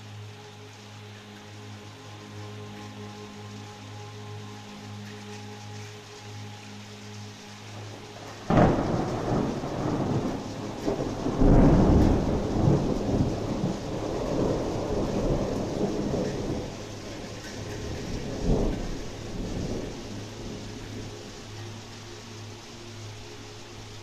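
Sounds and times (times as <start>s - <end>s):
rain hissing: 0.0s - 24.0s
deep thunder rumble: 8.2s - 21.4s
thunder crack: 8.5s - 20.0s.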